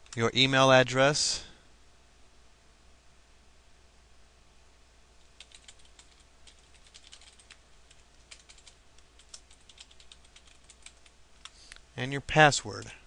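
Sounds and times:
computer keyboard typing: 5.3 - 11.6.

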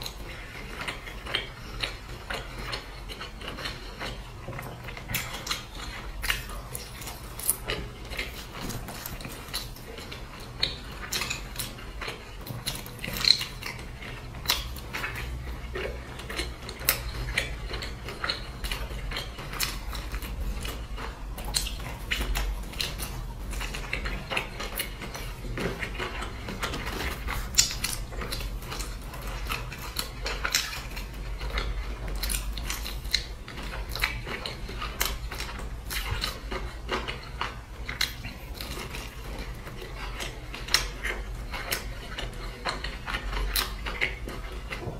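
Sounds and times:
crisp bites and chewing: 0.0 - 44.9.

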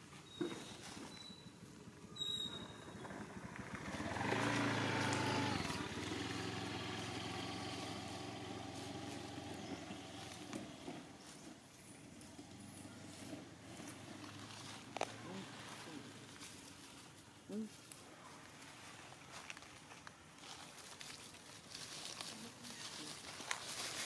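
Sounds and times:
vehicle engine passing by: 1.6 - 17.2.

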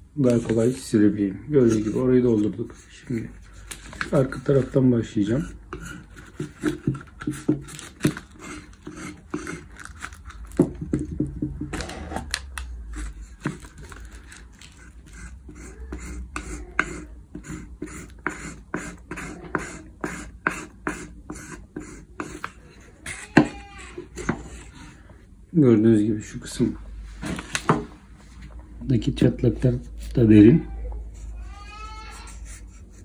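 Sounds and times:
knife scraping filler into wood: 5.4 - 10.2.

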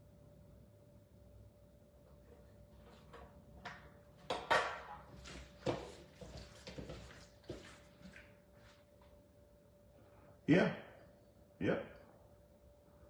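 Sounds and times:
rustles taps and knocks: 2.8 - 8.2.

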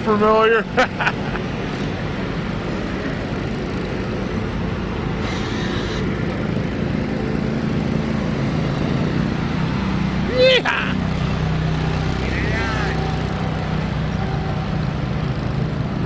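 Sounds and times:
lawn mower engines passing: 0.0 - 16.0.

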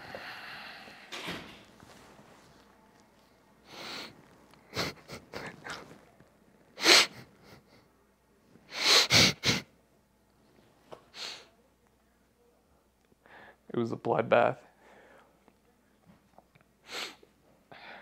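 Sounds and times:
man sobbing: 4.6 - 5.9.

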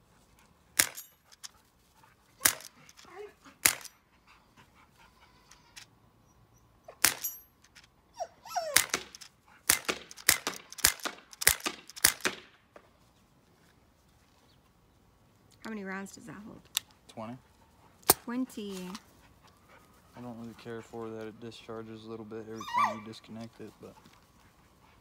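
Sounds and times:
pellet pistol shots: 0.8 - 1.1, 2.4 - 3.0, 3.6 - 4.0, 7.0 - 7.4, 8.8 - 12.6
dog whining: 3.0 - 3.5, 8.1 - 9.1, 22.5 - 23.3.

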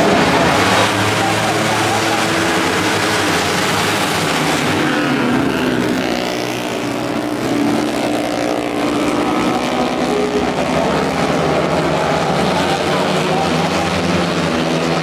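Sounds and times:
racing boat engines passing: 0.0 - 15.0.

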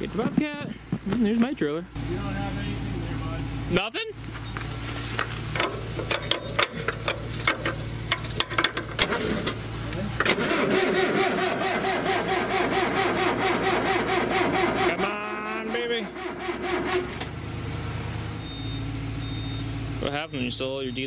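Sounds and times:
low engine hum: 0.0 - 21.0
irregular clicks and knocks: 5.2 - 9.6
engine cranking on starter: 5.5 - 9.6, 10.2 - 17.6.

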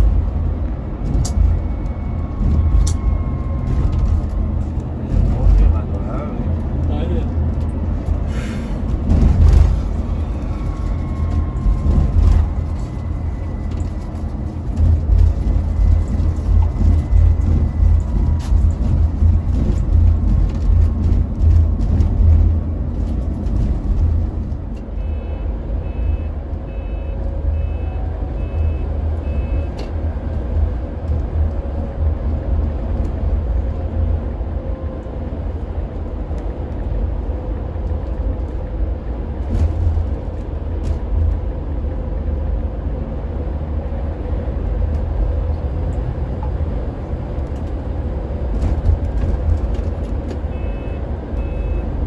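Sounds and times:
coach engine and road rumble: 0.0 - 52.0
short electronic beeps: 25.0 - 29.8, 50.5 - 51.9.

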